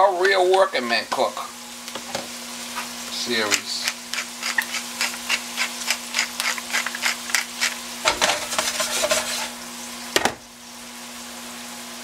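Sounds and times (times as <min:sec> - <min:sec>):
onions sizzling in butter: 0:00.0 - 0:12.0
pan rattling on stove grate: 0:03.7 - 0:09.5.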